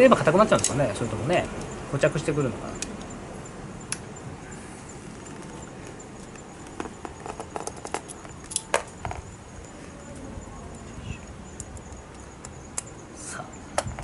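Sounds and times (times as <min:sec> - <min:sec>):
small metal parts clicking and tapping: 0:00.4 - 0:01.8, 0:05.2 - 0:09.4, 0:10.7 - 0:13.0.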